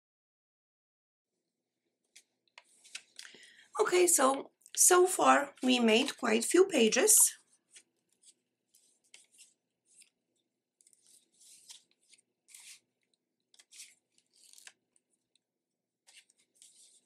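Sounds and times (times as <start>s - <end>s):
paper pages rustling: 2.1s - 3.6s, 7.4s - 15.4s, 16.0s - 17.0s.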